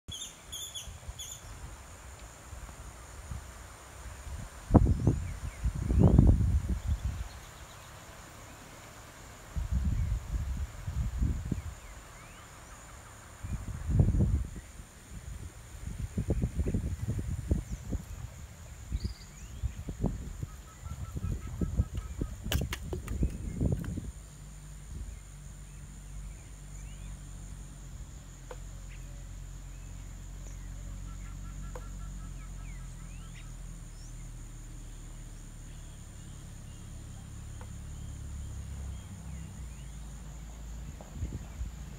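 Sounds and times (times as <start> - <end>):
bird chirps: 0.1 - 1.6, 18.9 - 23.8, 28.5 - 34.4
low steady rumble: 0.1 - 41.9.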